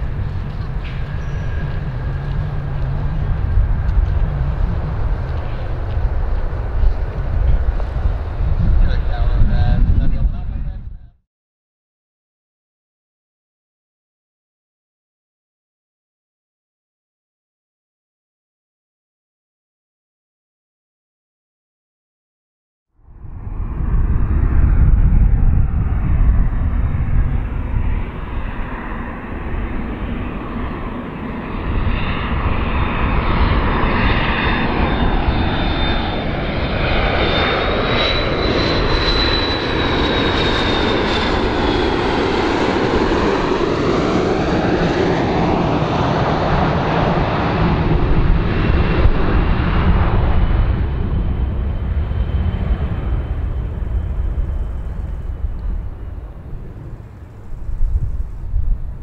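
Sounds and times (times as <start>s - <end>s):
high jet engine whine: 0.0s - 11.2s, 23.0s - 59.0s
jet engines rumbling: 0.0s - 11.2s, 23.0s - 59.0s.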